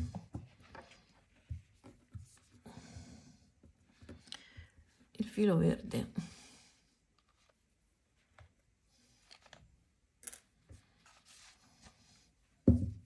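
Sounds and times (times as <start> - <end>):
soft rustles of thread: 0.3 - 2.7, 7.0 - 12.7.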